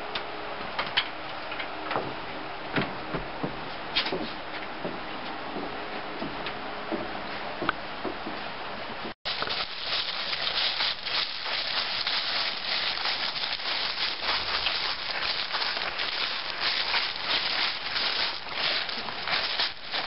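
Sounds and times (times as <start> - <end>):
footsteps crunching dry leaves: 9.3 - 20.0.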